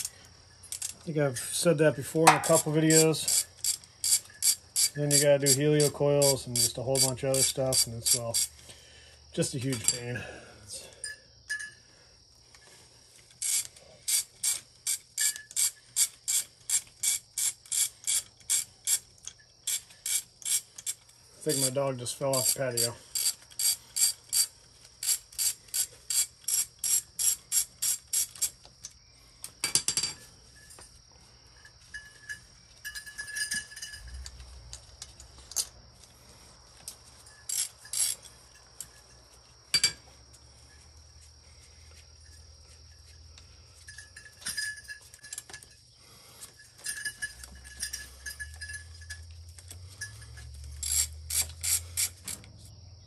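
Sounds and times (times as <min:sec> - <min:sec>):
hand ratchet clicking: 0:00.7 - 0:01.0, 0:02.2 - 0:08.6, 0:13.3 - 0:29.6, 0:37.5 - 0:38.9, 0:47.3 - 0:52.4
sharp metallic knocks: 0:02.2 - 0:02.6.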